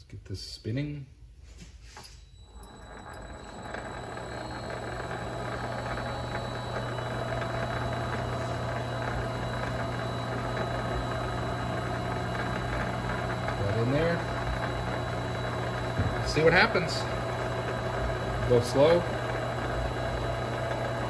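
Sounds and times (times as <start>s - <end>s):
lathe motor hum and whine: 2.4s - 21.0s.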